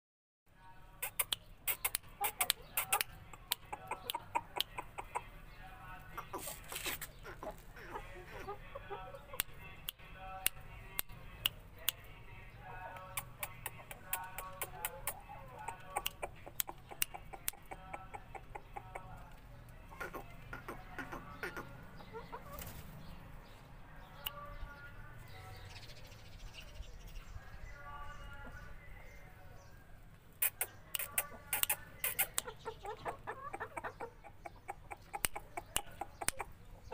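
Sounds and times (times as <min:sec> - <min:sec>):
chickens clucking: 0:00.9 - 0:24.6, 0:30.1 - 0:36.9
sharp clicks and ticks: 0:01.0 - 0:05.1, 0:15.8 - 0:19.0, 0:30.4 - 0:32.5, 0:35.0 - 0:36.5.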